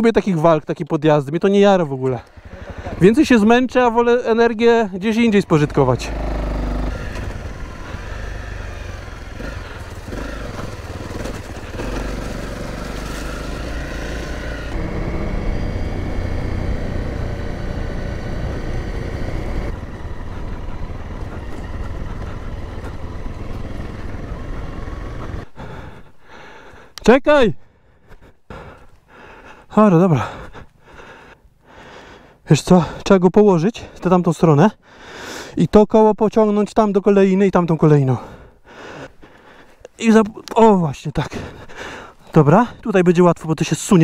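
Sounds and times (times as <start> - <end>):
motorcycle engine running: 1.9 - 26.0.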